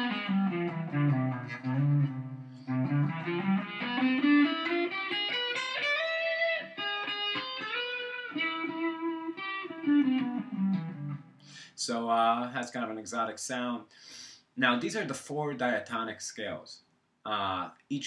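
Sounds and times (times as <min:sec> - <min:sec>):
electric guitar single-note runs: 0:00.0 - 0:11.2.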